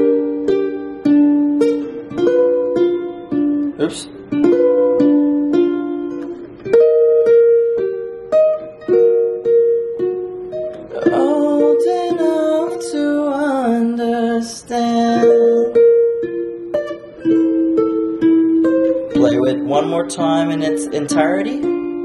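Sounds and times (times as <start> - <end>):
ukulele fingerpicked: 0.0 - 22.0
person singing: 10.8 - 16.3, 19.0 - 21.7.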